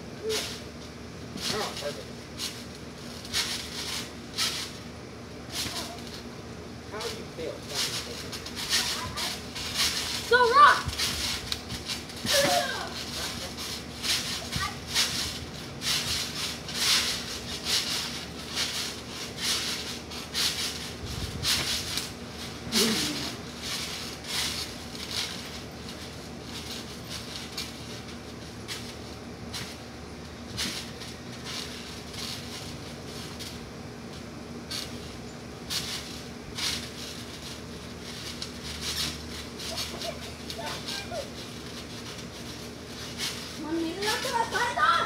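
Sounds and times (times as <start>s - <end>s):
trampoline spring bouncing: 0.2s - 45.0s.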